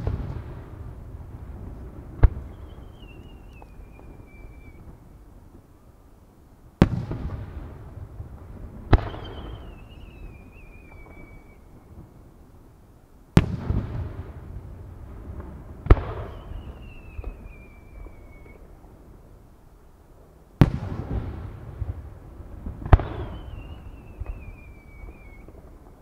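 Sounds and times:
firework shells booming: 6.8s - 12.1s, 20.6s - 26.0s
high whistle sliding down: 9.1s - 11.6s, 16.2s - 18.6s, 23.2s - 25.6s.

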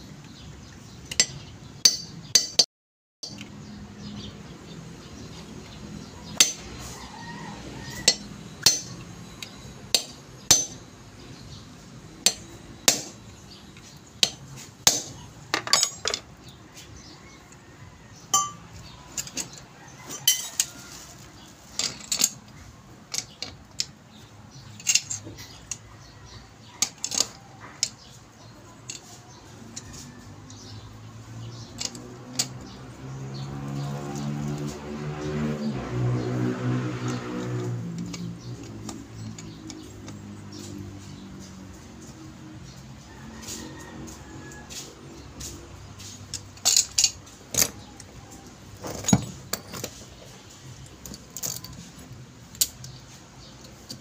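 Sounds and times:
hand tools clinking on metal: 1.0s - 3.6s, 6.2s - 11.0s, 12.2s - 17.0s, 18.2s - 35.0s, 37.0s - 54.0s
hammer tapping steel punch: 1.1s - 3.4s, 8.0s - 10.8s, 12.2s - 13.2s.

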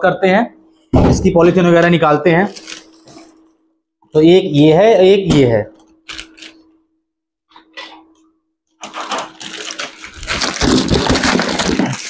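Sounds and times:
plastic wrapping crinkling: 2.4s - 3.5s, 6.0s - 6.6s, 8.8s - 12.0s.

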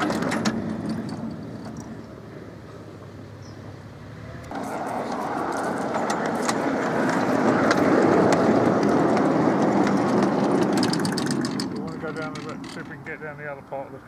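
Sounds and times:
miniature train wheels rolling: 0.0s - 2.2s, 4.5s - 13.1s.

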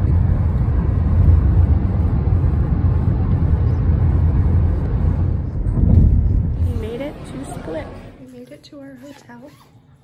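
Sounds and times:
road and wind noise in car: 0.0s - 8.4s.

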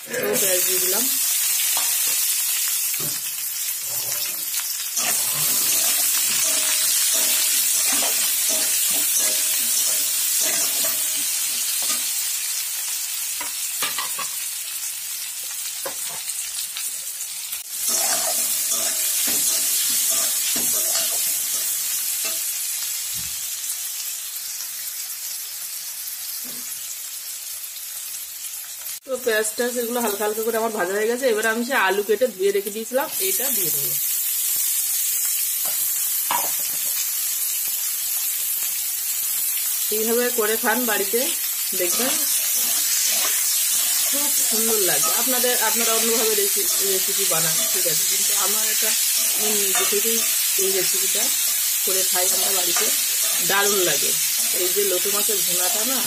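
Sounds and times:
onions sizzling in hot oil: 0.0s - 56.0s
metal spatula scraping pan: 3.9s - 12.2s, 17.8s - 22.5s, 41.8s - 51.6s.

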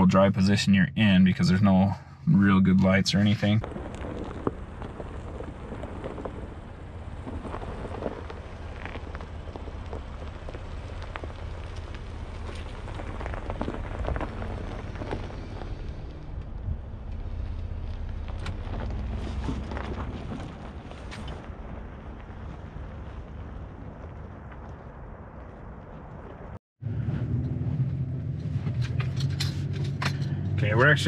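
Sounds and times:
engine low rumble: 0.0s - 31.0s
tyres crackling over dirt and rock: 3.4s - 26.6s.

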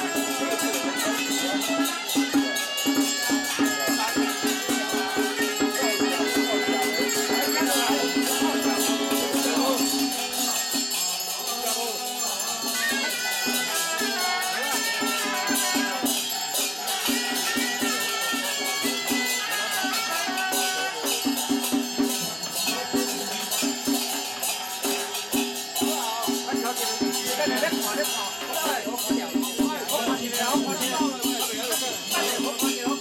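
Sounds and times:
cymbals and percussion clashing: 0.0s - 33.0s.

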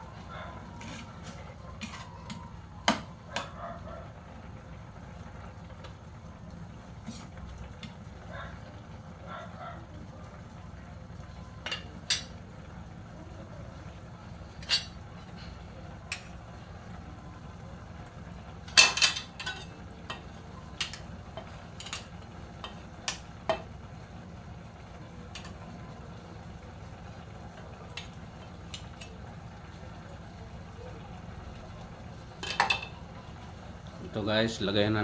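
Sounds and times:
metal kitchen utensils clinking: 14.5s - 15.0s, 18.6s - 23.7s, 32.4s - 33.0s.

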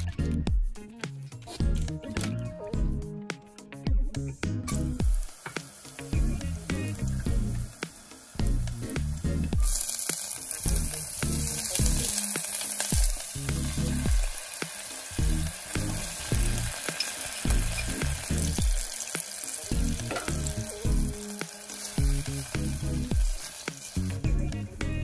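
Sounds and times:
onions sizzling in oil: 5.0s - 24.2s.

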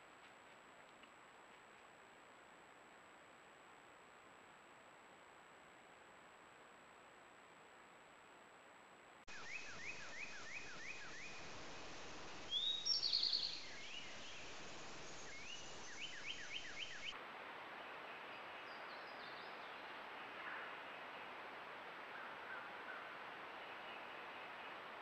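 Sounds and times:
faint outdoor hiss: 0.0s - 25.0s
songbirds singing: 9.3s - 17.2s.

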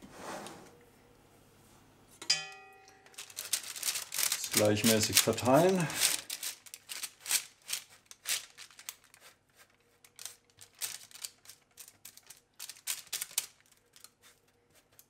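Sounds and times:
baking paper crinkling: 3.0s - 15.0s.

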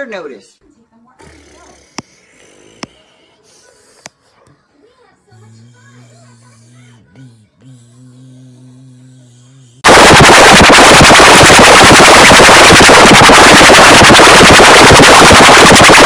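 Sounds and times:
loud distorted crackling noise: 9.8s - 16.0s.

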